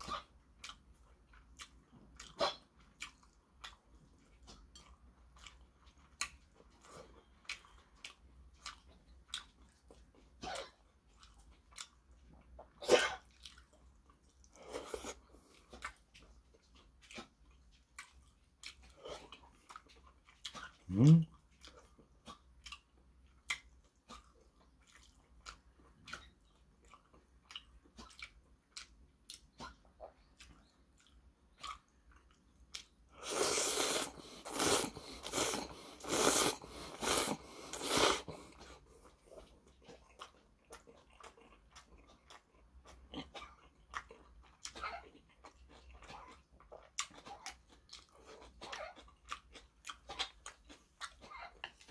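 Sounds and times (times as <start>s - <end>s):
wet chewing and lip-smacking: 0.0s - 51.9s
slurping noodles: 33.1s - 38.8s.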